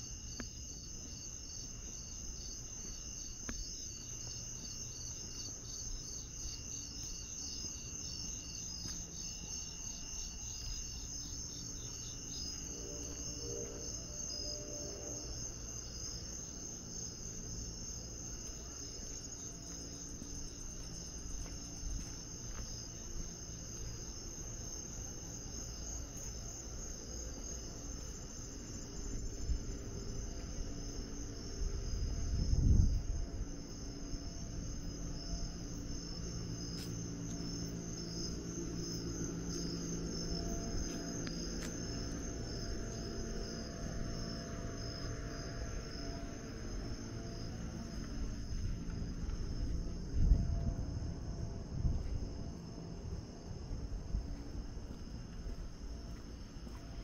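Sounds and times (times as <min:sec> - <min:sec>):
crickets chirping: 0:00.0 - 0:57.0
low rumble: 0:28.9 - 0:57.0.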